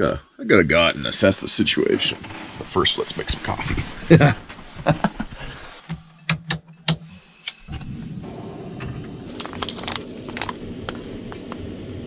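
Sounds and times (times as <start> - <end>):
gas stove burner rushing: 1.0 - 4.8, 7.0 - 12.0.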